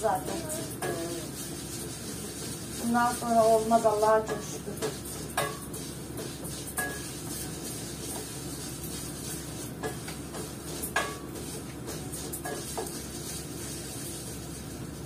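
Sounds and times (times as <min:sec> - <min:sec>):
wooden spoon knocking on pan: 0:04.2 - 0:05.6.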